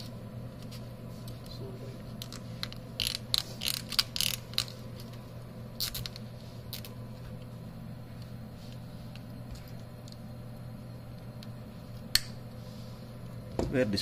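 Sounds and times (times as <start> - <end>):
steady low hum: 0.0 - 14.0
small parts clicking and rattling: 2.2 - 5.2.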